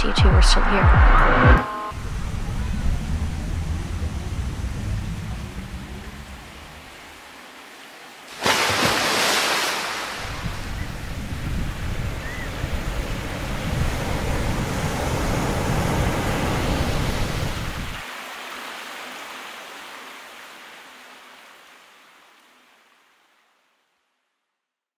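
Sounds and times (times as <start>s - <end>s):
deep rumble: 0.0s - 7.3s
rushing surf-like noise: 1.6s - 7.6s, 8.3s - 18.1s.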